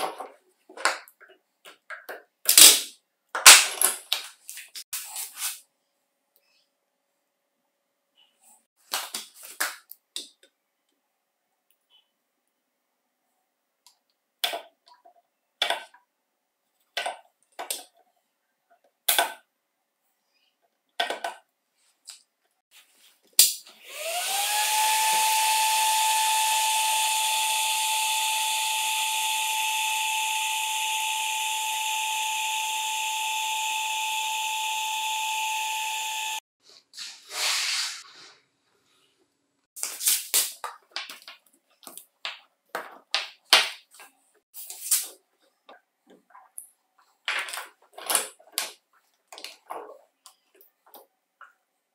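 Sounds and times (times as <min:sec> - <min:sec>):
vacuum motor whining: 0:23.8 - 0:36.4.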